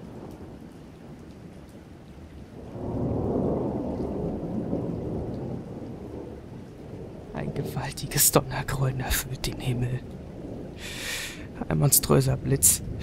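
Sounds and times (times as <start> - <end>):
rain falling: 0.0 - 13.0
deep rolling thunder: 2.6 - 8.6.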